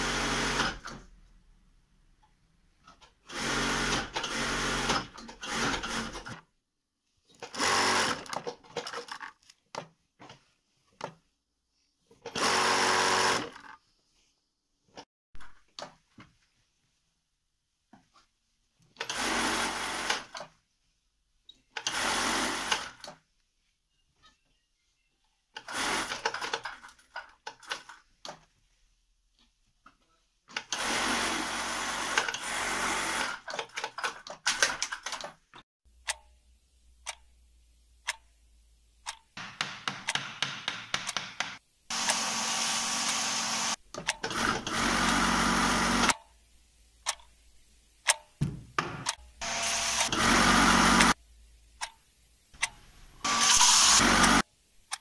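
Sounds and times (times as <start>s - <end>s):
sewing machine stitching: 3.2s - 6.4s, 7.4s - 9.3s, 12.2s - 13.8s, 19.0s - 20.5s, 21.8s - 23.1s, 25.6s - 28.0s, 30.5s - 35.3s, 41.9s - 46.2s, 49.4s - 51.2s.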